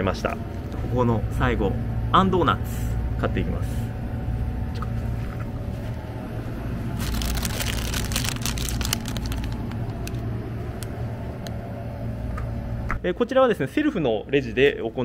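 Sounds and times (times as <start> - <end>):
steady low hum: 0.0 - 15.0
plastic bag crinkling: 6.9 - 10.3.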